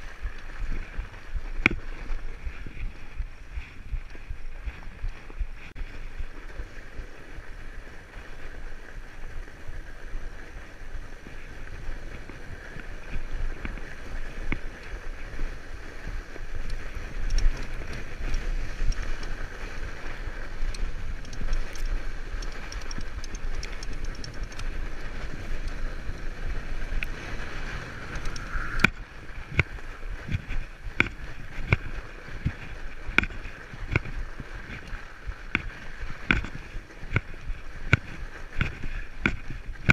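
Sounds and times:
bike tyres rolling over snow: 0.0s - 39.9s
wind rumble on microphone: 0.0s - 39.9s
bike rattling clicks and knocks: 11.0s - 39.9s.

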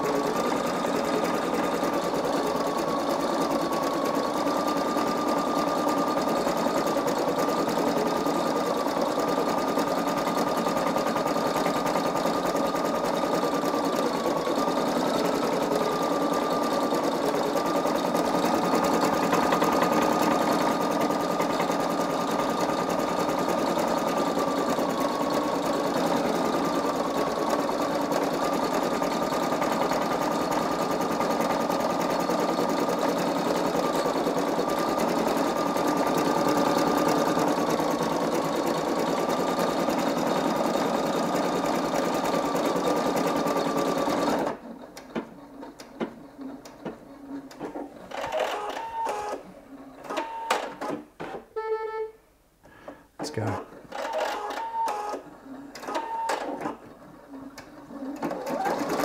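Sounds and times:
embroidery machine stitching: 0.0s - 51.0s, 53.4s - 59.0s.

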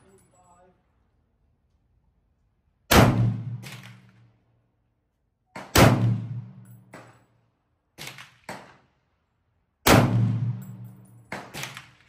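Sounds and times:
rifle shots echoing: 2.9s - 4.1s, 5.6s - 7.0s, 9.8s - 12.0s.

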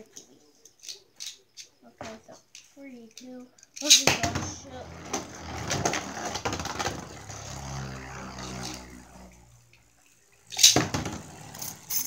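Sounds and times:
spinning top whirring and rattling: 3.6s - 12.0s
low hum: 4.6s - 12.0s
loud sharp plastic clatter: 10.5s - 11.3s.

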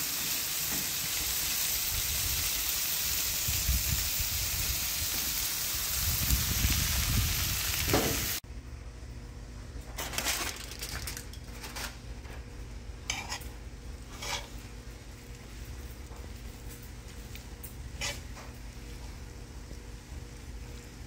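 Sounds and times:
vegetables sizzling in skillet: 0.0s - 8.4s, 13.1s - 15.1s, 17.8s - 18.7s
metal spatula scraping pan: 13.1s - 13.5s, 14.1s - 14.6s, 18.0s - 18.3s.

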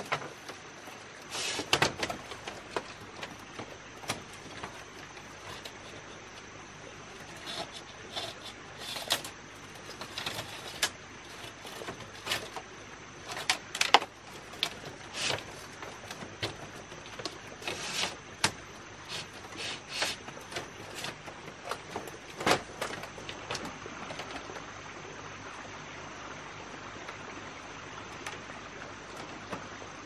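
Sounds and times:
knocks and scrapes of materials: 1.2s - 23.8s.

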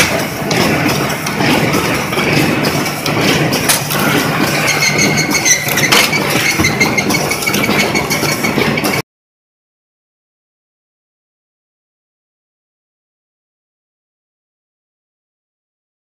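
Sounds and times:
machine motor and conveyor noise: 0.0s - 9.0s.

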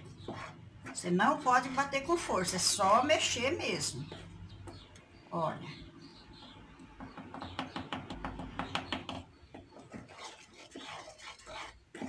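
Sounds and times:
spoon stirring batter in plastic bowl: 0.0s - 2.2s, 7.0s - 12.0s.

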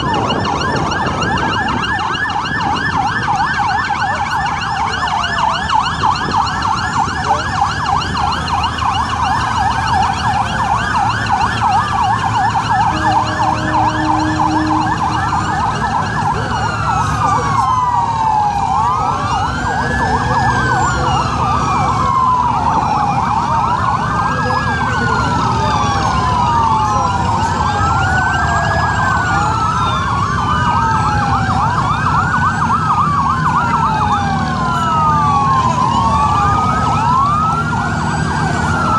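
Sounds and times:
boat sirens wailing: 0.0s - 38.9s
low horn note: 12.8s - 15.9s.

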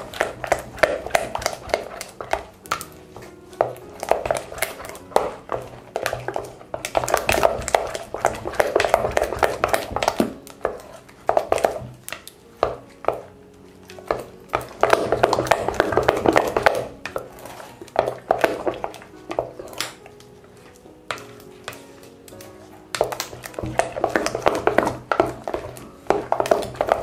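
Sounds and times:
faint music: 0.0s - 27.0s
spatula scraping a metal pot: 0.0s - 27.0s.

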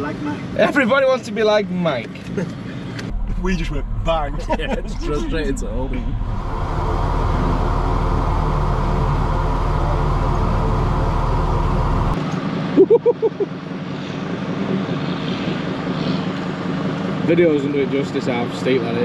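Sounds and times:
voice: 0.0s - 6.2s, 9.0s - 11.8s, 17.3s - 19.0s
diesel engine droning: 0.0s - 19.0s.

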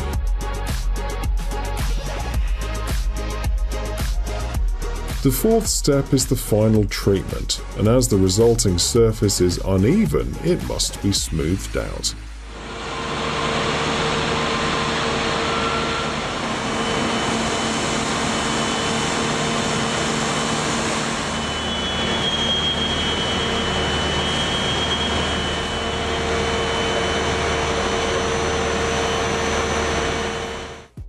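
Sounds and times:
factory machinery din: 12.5s - 31.0s.

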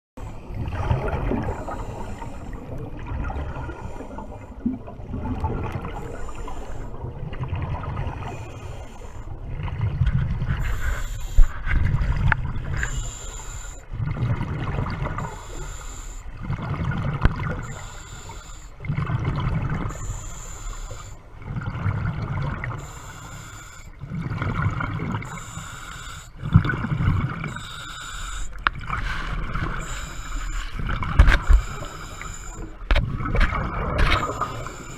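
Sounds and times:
exhaled air bubbling: 0.2s - 34.9s
regulator inhalation hiss: 10.6s - 11.6s, 12.8s - 13.8s, 15.2s - 16.4s, 17.6s - 18.8s, 19.9s - 21.2s, 22.8s - 24.0s, 25.3s - 26.4s, 27.5s - 28.6s, 29.6s - 30.8s, 31.4s - 32.8s.

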